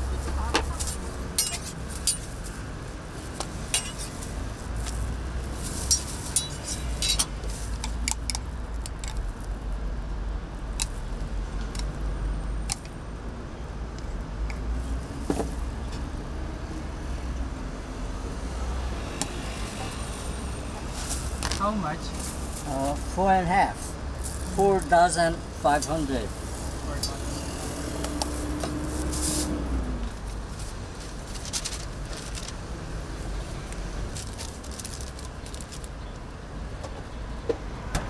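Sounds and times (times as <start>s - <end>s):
utensils clinking on griddle: 1.4s - 2.3s, 3.7s - 4.2s, 5.8s - 7.4s.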